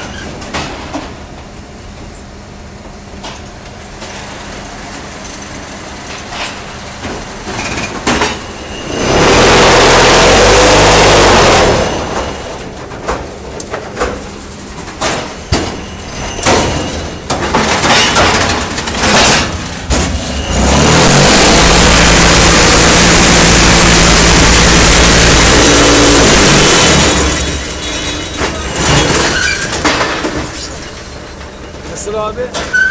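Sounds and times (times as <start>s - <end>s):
clanks and knocks of moulds: 0.0s - 1.2s, 12.1s - 20.4s, 27.4s - 32.9s
machine vibrating and droning: 13.4s - 29.3s.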